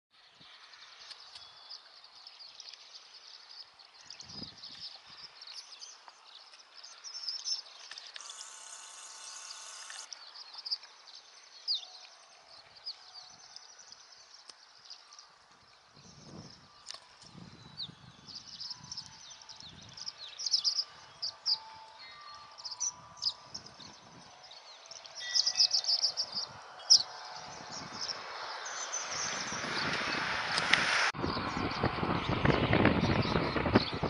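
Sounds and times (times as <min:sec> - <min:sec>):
flock of birds chirping: 0:00.3 - 0:34.0
steady buzzy sound: 0:08.2 - 0:10.1.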